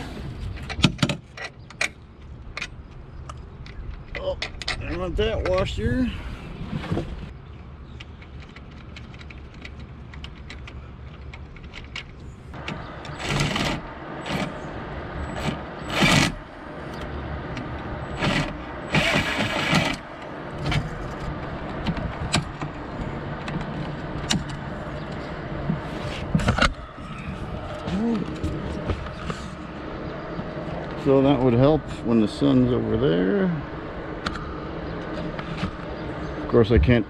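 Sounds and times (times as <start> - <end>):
handling clicks and knocks: 7.9 - 13.7
cordless drill running: 18.2 - 20.0.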